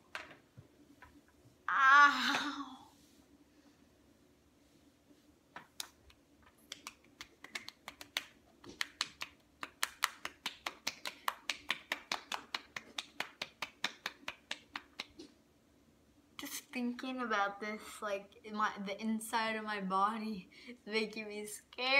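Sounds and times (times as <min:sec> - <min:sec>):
hands slapping cheeks: 0:05.6 - 0:15.3.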